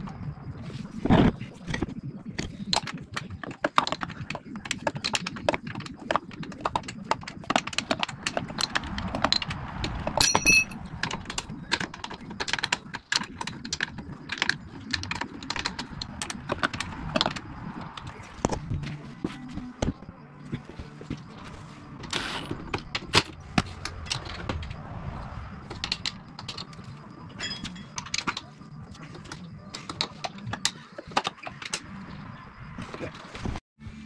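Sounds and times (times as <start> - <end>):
short metallic ring: 10.2 - 10.8
metal hardware clicking and clinking: 10.2 - 16.0.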